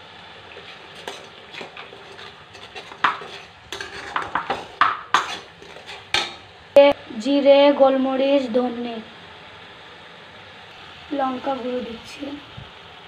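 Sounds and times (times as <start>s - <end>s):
low sizzle of frying: 0.0s - 13.0s
spoon scraping metal pan: 0.5s - 6.5s.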